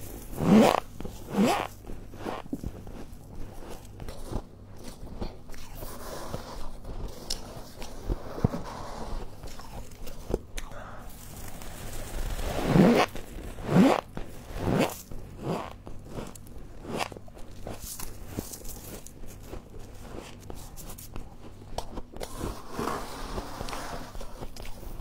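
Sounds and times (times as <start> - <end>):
frost crunching as scraped: 0.0 - 25.0
crunching ice being chewed: 0.1 - 5.8, 13.1 - 22.4.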